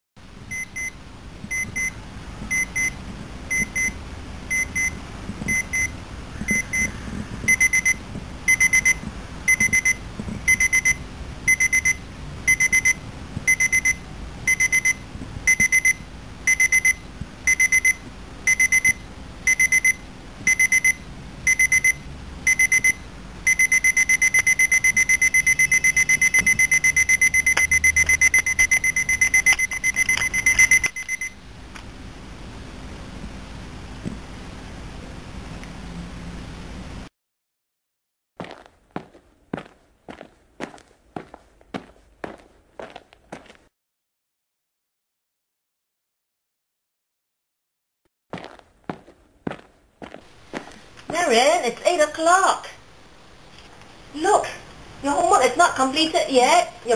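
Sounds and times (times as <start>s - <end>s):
alarm clock beeping: 0.5s - 1.9s, 2.5s - 31.4s.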